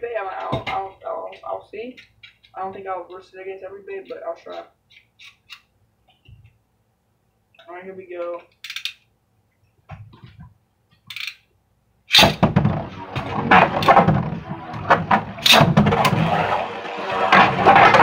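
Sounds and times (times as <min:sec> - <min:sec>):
ripcord launchers pulled: 0:08.6 - 0:09.0, 0:11.1 - 0:11.4.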